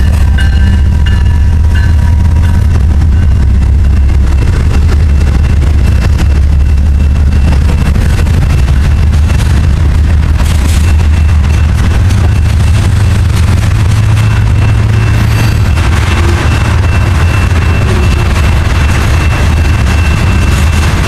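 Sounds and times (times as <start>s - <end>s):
freight train rolling past: 0.0s - 21.0s
train horn: 16.0s - 16.7s.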